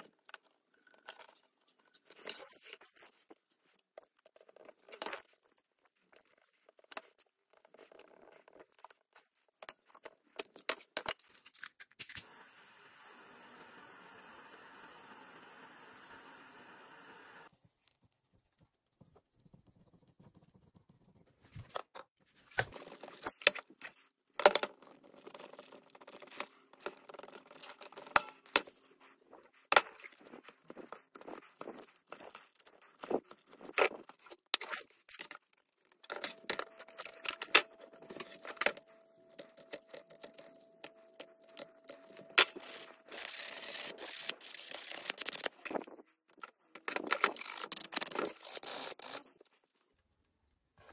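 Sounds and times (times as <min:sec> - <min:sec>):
knife cutting and scraping plastic: 0:21.4 - 0:49.8
sandpaper rubbing plastic: 0:41.4 - 0:45.8, 0:47.0 - 0:49.4.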